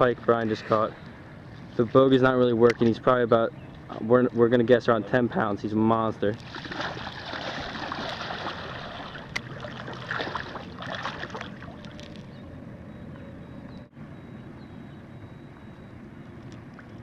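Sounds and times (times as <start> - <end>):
shallow water splashing: 6.4 - 12.4.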